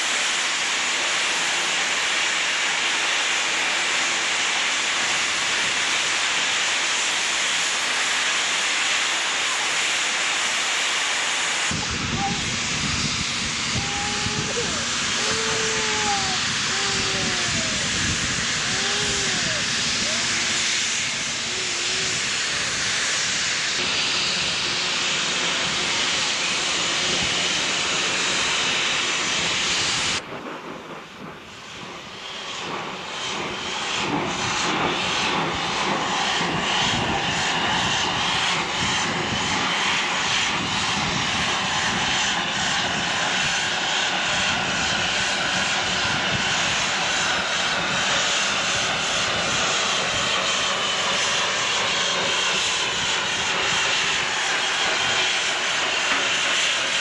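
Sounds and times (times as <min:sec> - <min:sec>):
steam locomotive hissing: 0:00.0 - 0:57.0
pulsing locomotive beat: 0:11.7 - 0:57.0.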